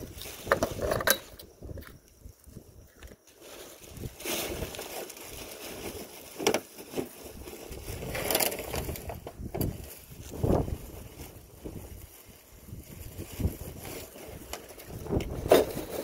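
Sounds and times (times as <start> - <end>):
wind buffeting microphone: 7.3 - 16.0.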